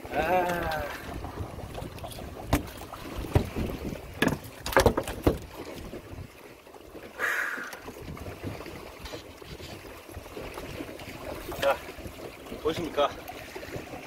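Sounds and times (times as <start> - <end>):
knocks and thumps on boat deck: 1.7 - 6.1.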